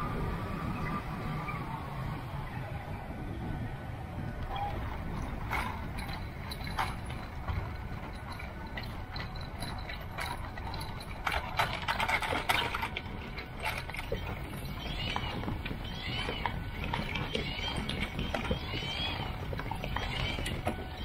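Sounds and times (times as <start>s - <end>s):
wheels rumbling over grass: 0.0s - 21.0s
frame rattling and knocking: 4.7s - 21.0s.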